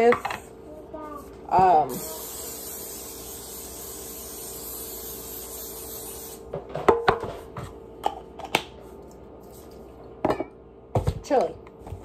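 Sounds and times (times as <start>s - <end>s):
aerosol spray hissing: 1.9s - 6.4s.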